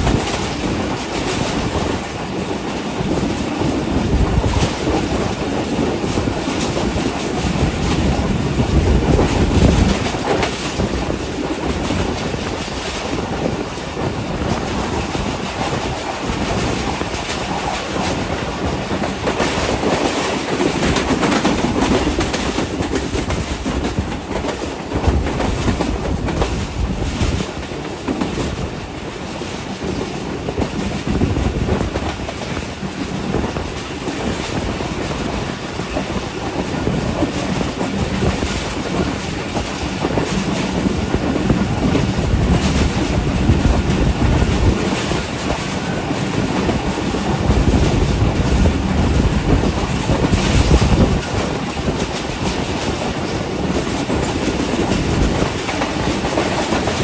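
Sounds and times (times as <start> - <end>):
clickety-clack over rail joints: 0.0 - 57.0
train wheels rumbling on rails: 0.0 - 57.0.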